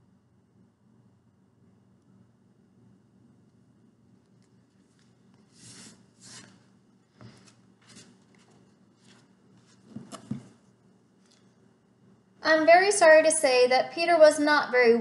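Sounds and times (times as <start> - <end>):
book pages flipping: 4.3 - 11.5
soft knocks of book handled: 7.2 - 10.7.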